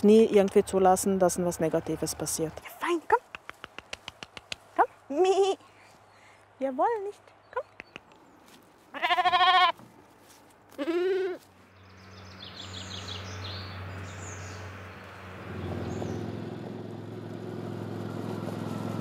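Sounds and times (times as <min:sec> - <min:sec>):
birds chirping: 0:00.0 - 0:09.0, 0:11.5 - 0:16.5
lamb bleating: 0:08.9 - 0:09.8, 0:10.7 - 0:11.5
quad bike engine approaching: 0:11.8 - 0:19.0.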